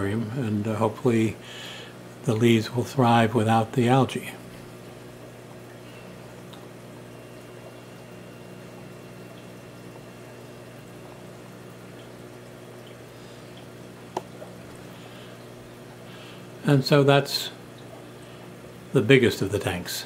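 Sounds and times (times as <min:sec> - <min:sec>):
aquarium filter humming: 0:00.0 - 0:20.0
water trickling: 0:00.0 - 0:20.0.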